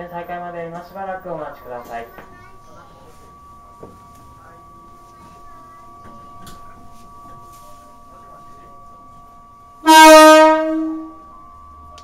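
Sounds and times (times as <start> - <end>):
train horn blast: 9.8 - 11.4.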